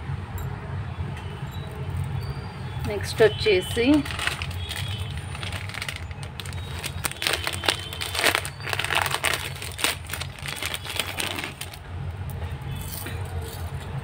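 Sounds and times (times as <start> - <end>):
crinkling and rustling: 3.7 - 11.8.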